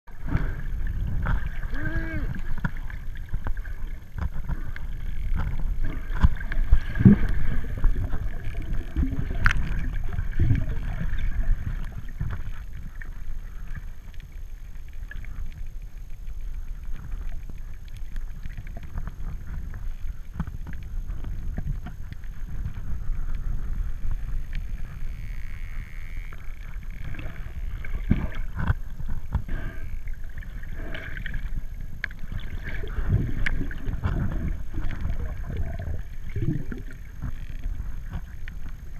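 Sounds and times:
underwater water rumble: 0.1 - 38.9
short gliding tones: 24.2 - 28.1.

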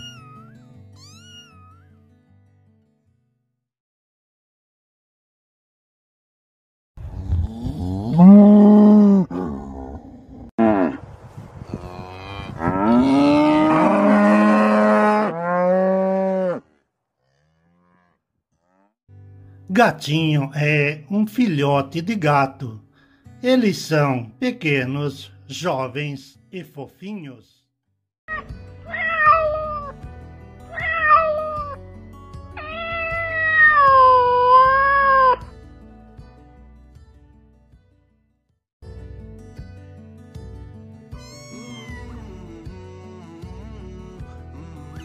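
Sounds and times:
kitten meowing: 1.0 - 1.8, 28.3 - 29.9, 30.7 - 31.8, 32.6 - 35.4, 41.2 - 42.6
cattle mooing: 7.2 - 11.0, 11.7 - 18.9.

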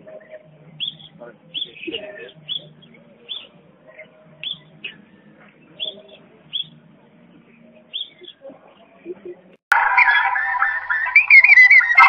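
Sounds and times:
parrot chirping: 9.8 - 12.0.

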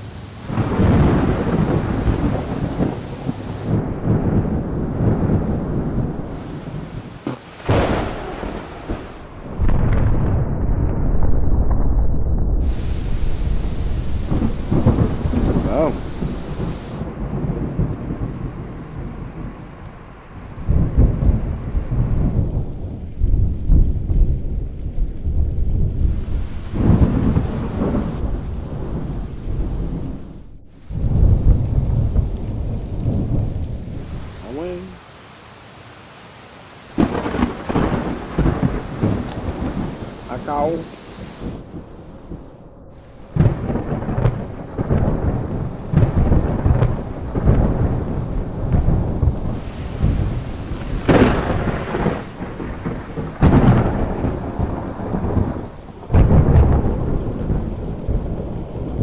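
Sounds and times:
thunder rumbling: 0.0 - 59.0.

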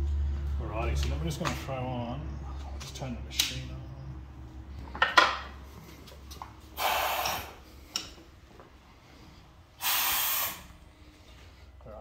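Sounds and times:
compressed air hissing: 6.7 - 7.6, 9.8 - 10.9.

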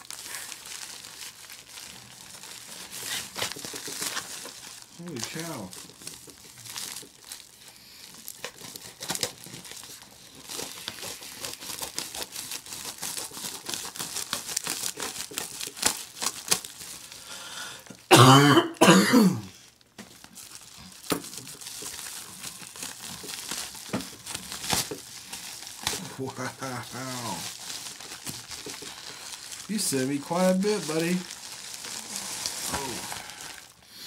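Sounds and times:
plastic mailer crinkling and tearing: 0.0 - 18.1, 19.5 - 34.0
man coughing: 18.1 - 19.5.

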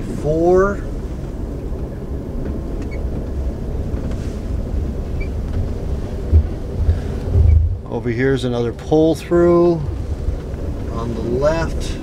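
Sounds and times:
car rolling on paved road: 0.0 - 12.0
low thump: 6.3 - 7.8.

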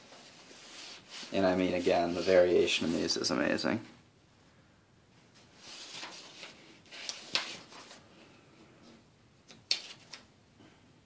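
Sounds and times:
paper rustling: 5.4 - 8.0
paper snaps: 9.4 - 10.3.

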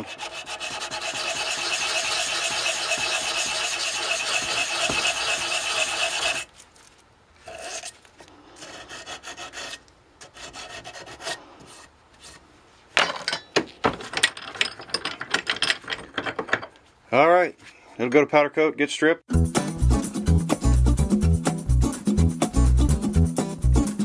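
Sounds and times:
hand file scraping steel: 0.0 - 6.5, 7.4 - 12.4.

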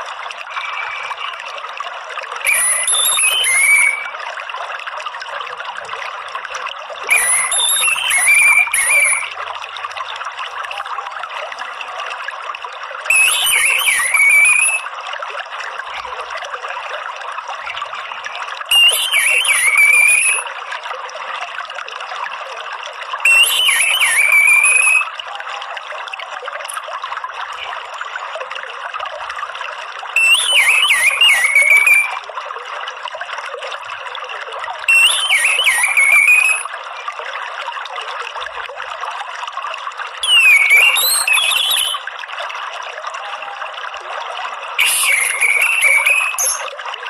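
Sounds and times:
water trickling: 0.0 - 47.0
thrush chattering call: 2.5 - 4.2, 7.1 - 9.3, 13.1 - 14.8, 18.7 - 20.4, 23.3 - 25.1, 30.2 - 32.2, 34.9 - 36.7, 40.2 - 42.0, 44.8 - 46.8.

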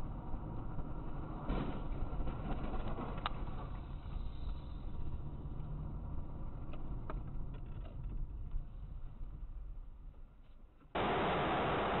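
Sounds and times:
car driving rumble: 0.0 - 9.8
loud steady hiss: 11.0 - 12.0.

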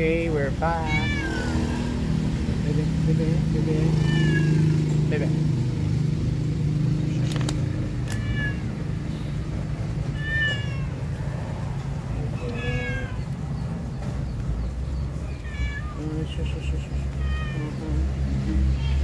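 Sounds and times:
cat meowing: 0.8 - 2.0, 3.9 - 4.8, 7.9 - 9.1, 10.0 - 11.5, 12.1 - 13.4, 15.2 - 16.2, 17.0 - 18.0, 18.6 - 19.0.

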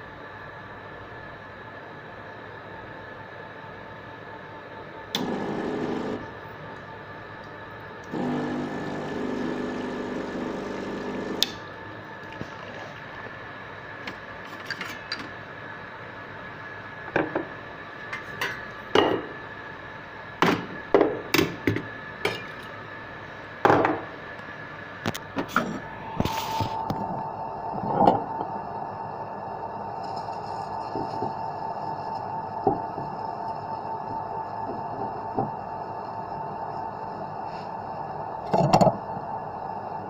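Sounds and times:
espresso machine pump running: 5.2 - 6.9, 8.0 - 13.4.

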